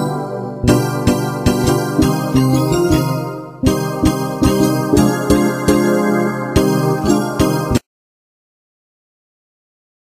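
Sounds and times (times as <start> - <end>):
solo keyboard chords: 0.0 - 7.8.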